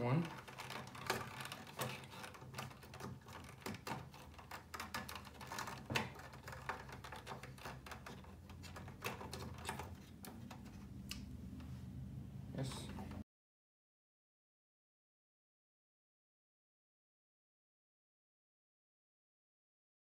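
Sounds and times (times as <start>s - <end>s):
fingers clicking on metal parts: 0.2s - 11.3s.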